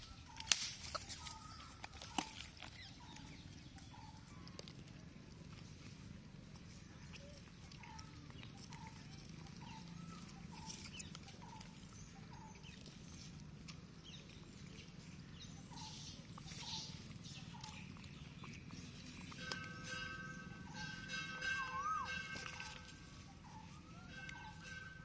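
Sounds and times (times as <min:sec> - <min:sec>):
animal calling: 0:00.0 - 0:25.0
outdoor background noise: 0:00.0 - 0:25.0.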